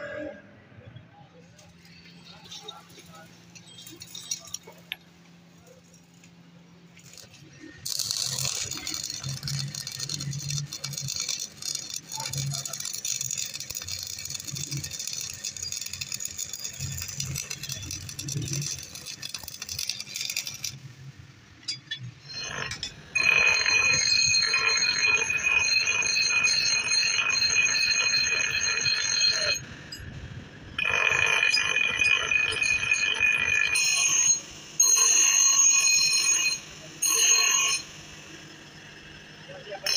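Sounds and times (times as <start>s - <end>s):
grinding wheel whining on steel: 1.7s - 6.2s, 7.0s - 39.9s
arc welding crackling: 7.0s - 20.9s.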